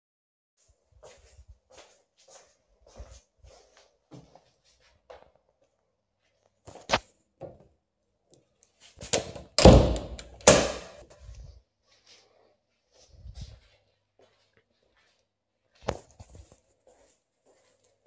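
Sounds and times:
door click: 9.1 - 11.0
knocks on door rattling: 9.2 - 11.0.

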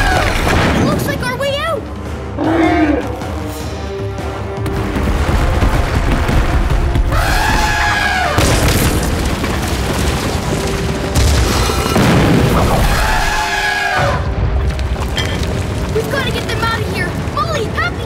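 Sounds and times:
background music: 0.0 - 18.0
cartoon elephants trumpeting: 2.4 - 3.1, 12.8 - 14.3.

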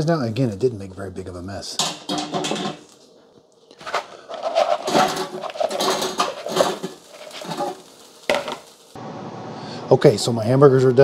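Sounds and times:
fries clattering into fryer basket: 1.8 - 2.9, 4.4 - 8.7.

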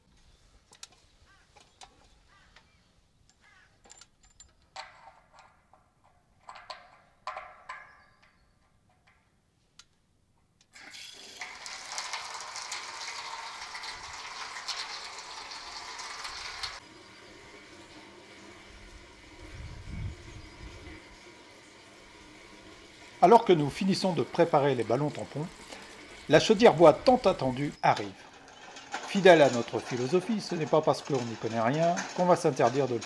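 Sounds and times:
water gushing into steel tank: 10.8 - 19.8.

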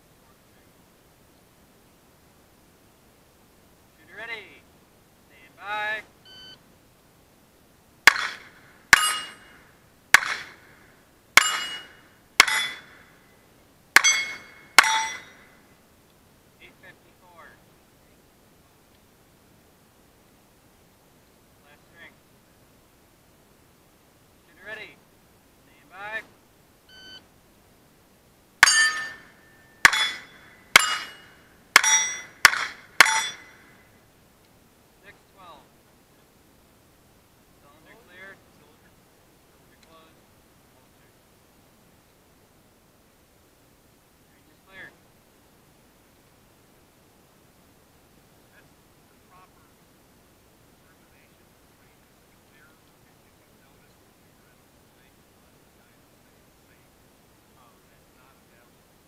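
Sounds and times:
steel plate ringing: 8.1 - 10.7, 11.4 - 13.2, 14.0 - 15.6, 28.6 - 33.9
pistol shots: 8.1 - 10.8, 11.4 - 13.1, 28.6 - 33.6.

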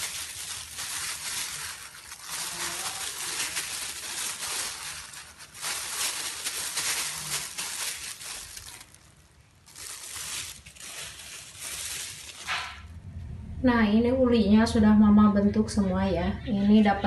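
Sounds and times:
breadcrumbs rustling: 0.0 - 12.9
plastic gloves crinkling: 0.0 - 13.0.

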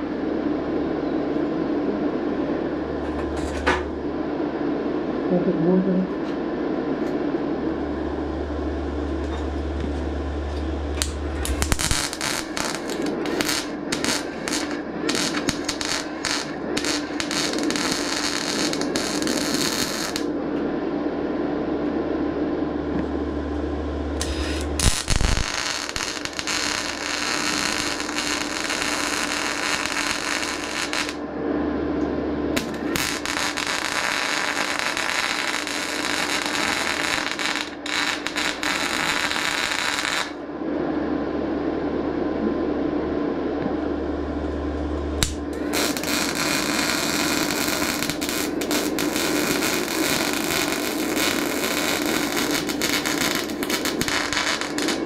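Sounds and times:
steady hum: 0.0 - 55.0
welding arc crackling: 8.8 - 20.3, 24.1 - 31.2, 32.6 - 40.4, 45.1 - 55.0.

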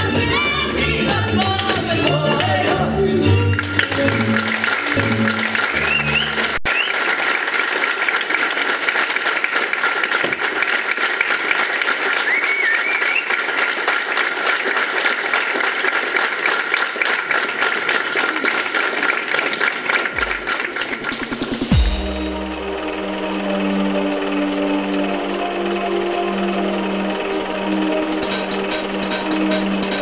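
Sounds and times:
audience applauding: 1.0 - 21.9.

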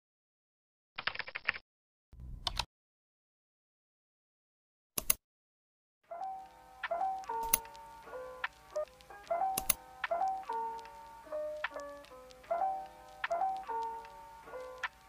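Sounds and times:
sharp mouse click: 5.0 - 5.2, 7.4 - 7.7, 9.6 - 9.8
soft lo-fi background music: 6.1 - 15.0.

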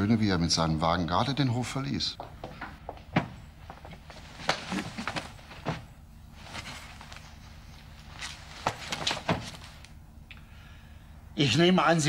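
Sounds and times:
knocks and thuds: 2.2 - 5.9
shuffling footsteps: 2.2 - 10.0
clothing rustling: 2.8 - 10.0.

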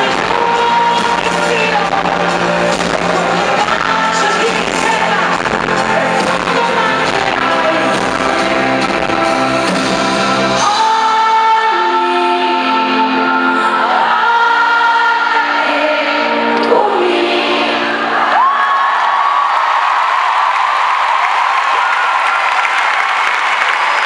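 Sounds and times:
live band playing pop song: 0.0 - 18.5
person singing: 0.0 - 18.8.

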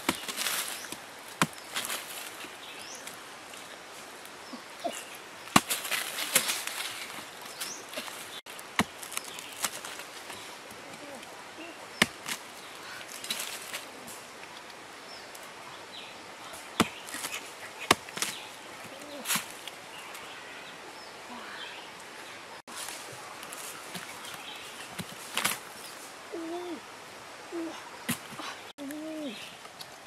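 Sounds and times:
decayed wood crumbling: 5.5 - 11.0.

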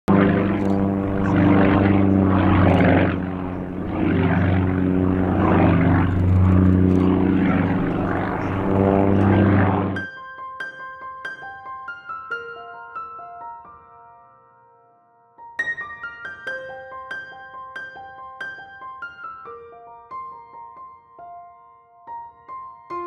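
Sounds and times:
propeller plane engine drone: 0.0 - 10.0
light piano-like music: 0.2 - 23.0.

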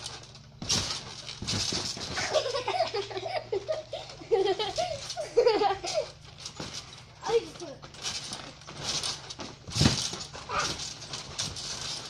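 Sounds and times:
rustling thumps: 0.0 - 12.0
child giggling: 2.2 - 6.1.

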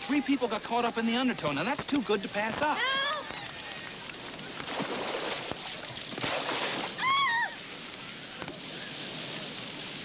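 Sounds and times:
water splashing: 3.4 - 8.0.

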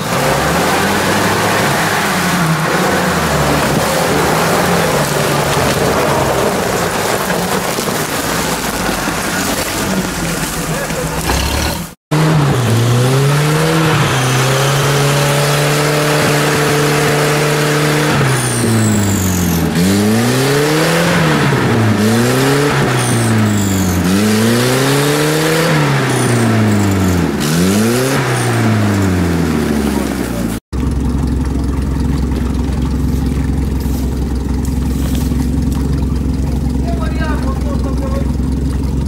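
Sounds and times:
off-road vehicle engine revving: 0.0 - 39.0.

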